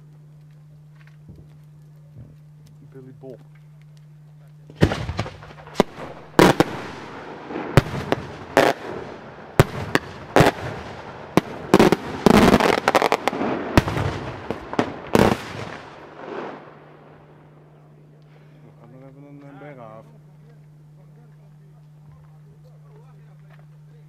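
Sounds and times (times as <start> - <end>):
firework rumble and crackle: 0.0 - 24.0
firework shells bursting: 4.7 - 16.7.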